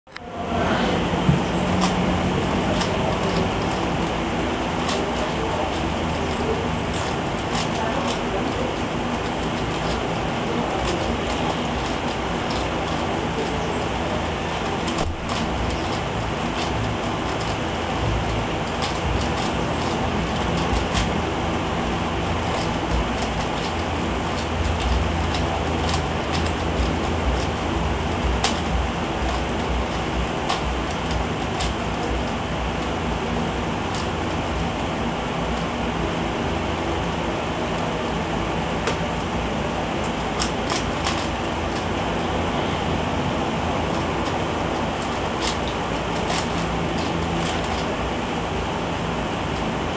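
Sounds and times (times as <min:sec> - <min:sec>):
background hum and hiss: 0:00.1 - 0:49.9
steady rushing noise: 0:00.1 - 0:49.9
plastic cube clicks: 0:01.7 - 0:04.1, 0:04.8 - 0:13.6, 0:14.4 - 0:21.2, 0:22.4 - 0:33.0, 0:40.0 - 0:41.9, 0:43.8 - 0:47.9.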